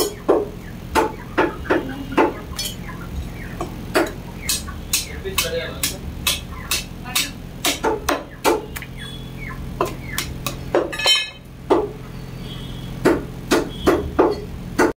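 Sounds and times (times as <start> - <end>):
cleaver chopping on wooden block: 4.0 - 8.6, 13.0 - 14.9.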